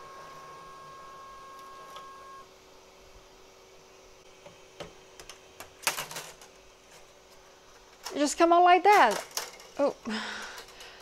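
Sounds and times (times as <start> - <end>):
stepper motor whining: 0.0 - 2.5
low steady hum: 0.0 - 5.7.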